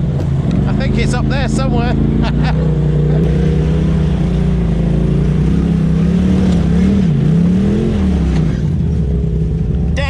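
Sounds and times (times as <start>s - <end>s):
utility vehicle engine running: 0.0s - 10.0s.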